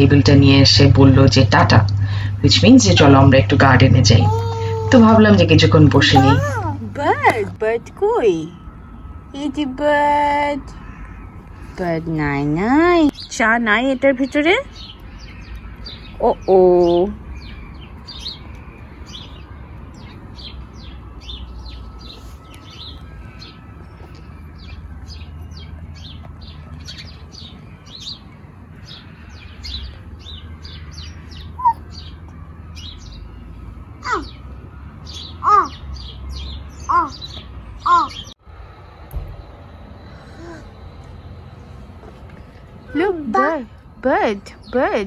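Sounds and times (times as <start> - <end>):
sparrows chirping: 0.0 - 45.0
rising and falling bird calls: 4.0 - 7.2, 14.6 - 44.0.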